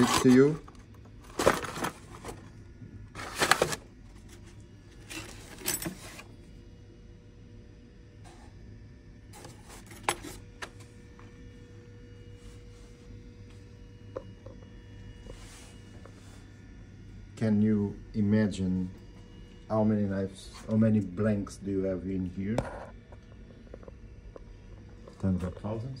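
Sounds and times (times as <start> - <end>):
cardboard boxes scraping and rustling: 0.0 - 2.6, 3.2 - 6.3
steady low hum: 0.0 - 26.0.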